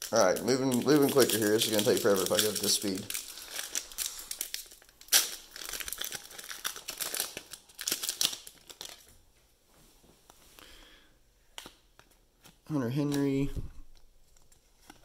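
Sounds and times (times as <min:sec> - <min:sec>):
foil wrapper crinkling: 0:00.0 - 0:09.1.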